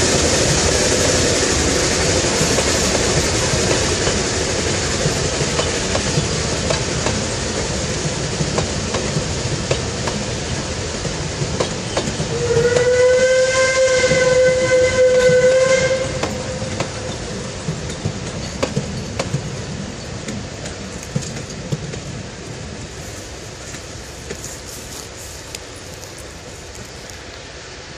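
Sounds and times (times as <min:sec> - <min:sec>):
train wheels clicking over rail joints: 0:00.0 - 0:27.5
steam whistle blast: 0:12.2 - 0:17.1.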